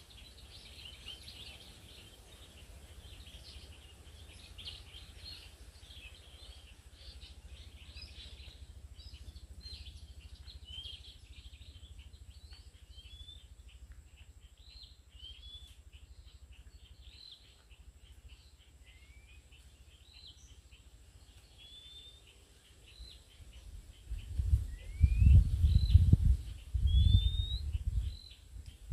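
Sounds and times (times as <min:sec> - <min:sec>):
birds chirping and whistling: 0:00.0 - 0:28.9
steady low rumble: 0:02.4 - 0:14.9, 0:23.0 - 0:28.9.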